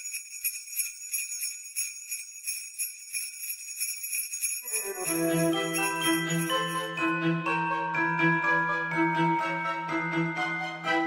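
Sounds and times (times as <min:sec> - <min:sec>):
sleigh bells jingling: 0:00.0 - 0:08.1
chiming bell-like notes: 0:00.0 - 0:11.0.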